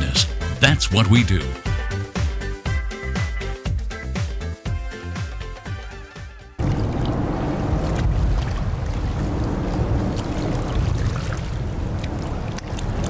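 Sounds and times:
motorboat engine rumble: 6.6s - 13.0s
water splashing: 6.6s - 13.0s.

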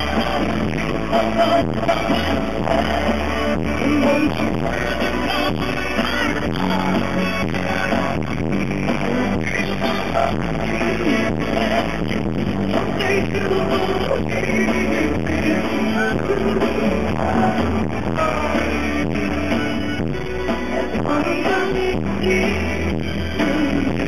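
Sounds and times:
live pop band: 0.0s - 24.0s
woman singing into a microphone: 20.7s - 24.0s.

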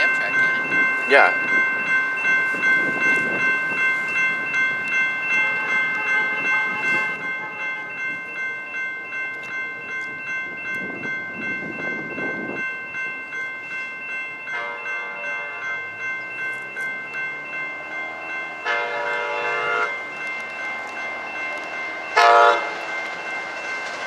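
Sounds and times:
crossing bell ringing: 0.0s - 24.0s
train horn: 5.4s - 7.8s, 14.5s - 15.7s, 18.0s - 20.0s, 22.2s - 22.8s.

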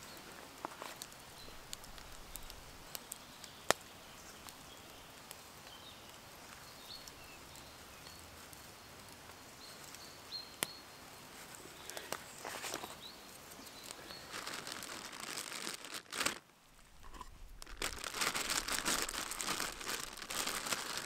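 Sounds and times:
faint bird chirps: 9.3s - 15.0s.

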